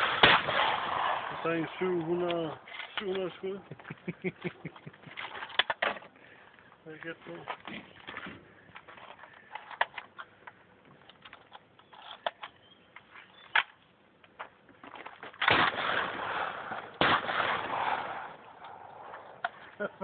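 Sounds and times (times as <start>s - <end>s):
shotgun shots with echo: 0.0s - 2.0s, 15.4s - 18.5s.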